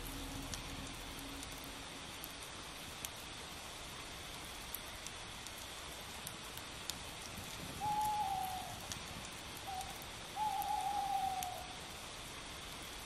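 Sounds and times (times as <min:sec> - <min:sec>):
faint hiss with crackles: 0:00.0 - 0:13.0
owl hooting: 0:07.8 - 0:08.8, 0:09.6 - 0:11.8.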